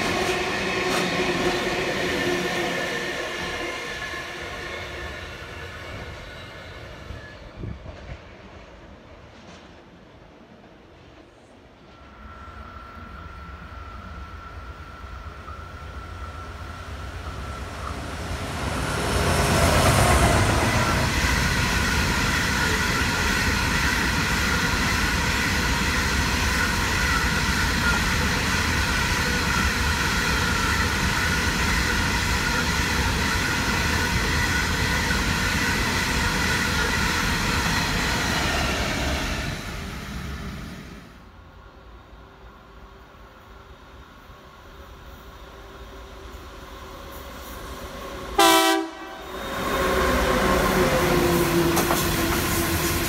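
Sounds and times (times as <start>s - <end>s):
diesel locomotives passing: 0.0s - 53.0s
wheels ringing on rails: 11.9s - 39.4s.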